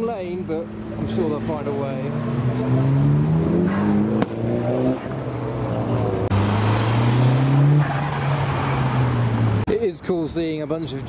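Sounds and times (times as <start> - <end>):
car engine revving: 0.4 - 9.7
car engine accelerating: 0.5 - 9.7
sharp crack: 4.1 - 4.4.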